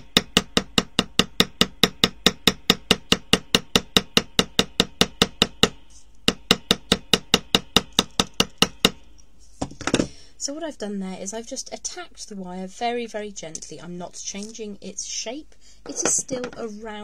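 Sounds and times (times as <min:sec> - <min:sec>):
hammer tapping metal: 0:00.0 - 0:09.0.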